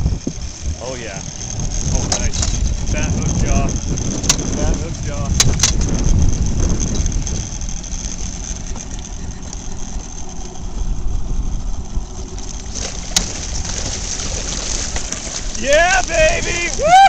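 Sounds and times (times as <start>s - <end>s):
fishing reel gears clicking: 0.0s - 17.0s
steady low rumble: 0.0s - 17.0s.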